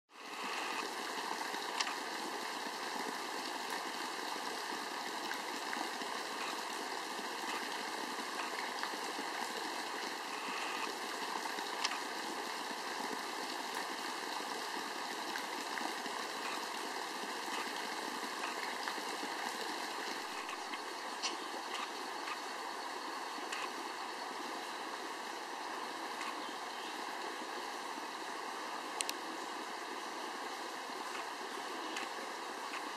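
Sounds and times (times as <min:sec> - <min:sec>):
creek running over stones: 0:00.1 - 0:32.9.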